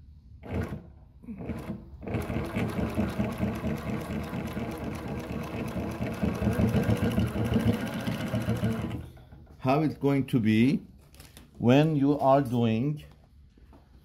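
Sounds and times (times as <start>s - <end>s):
industrial sewing machine stitching: 0.4s - 9.2s.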